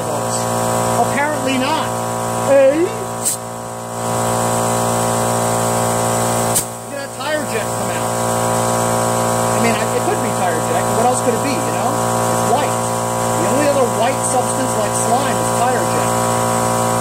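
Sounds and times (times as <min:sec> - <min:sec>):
air compressor humming: 0:00.0 - 0:17.0
air hissing from tire chuck: 0:03.1 - 0:06.9.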